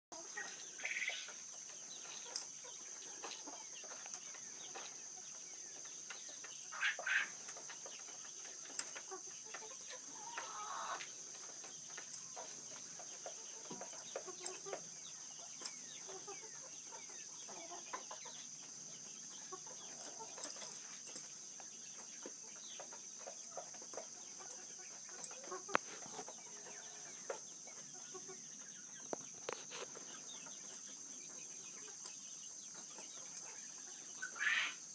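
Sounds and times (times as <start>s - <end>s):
quail clucking calls: 0.2s - 5.2s, 5.9s - 7.6s, 8.8s - 11.1s, 32.9s - 34.9s.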